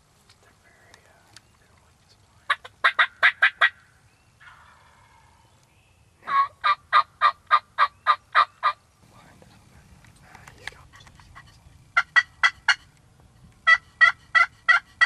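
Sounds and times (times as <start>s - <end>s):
turkey yelps: 2.5s - 5.4s, 6.2s - 8.8s, 13.6s - 15.0s.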